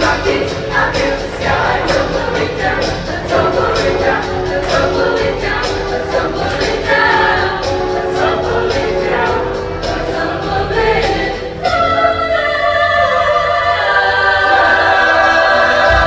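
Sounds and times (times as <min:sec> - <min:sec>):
instrumental accompaniment with beat: 0:00.0 - 0:12.1
choir singing: 0:00.0 - 0:16.0.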